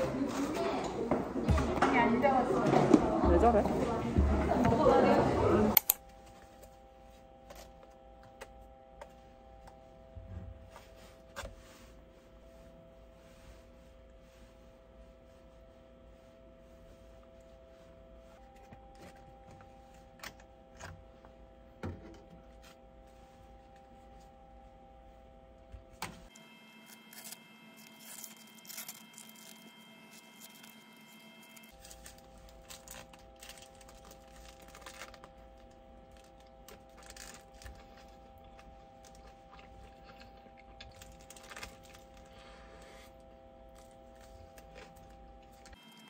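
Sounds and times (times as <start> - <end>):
low steady hum: 0.0 - 46.0
clicks and rustles of objects: 27.0 - 42.4.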